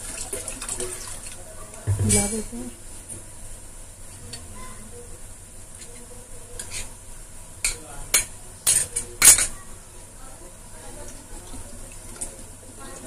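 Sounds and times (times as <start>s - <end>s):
spoon scraping against bowl: 5.8s - 7.0s.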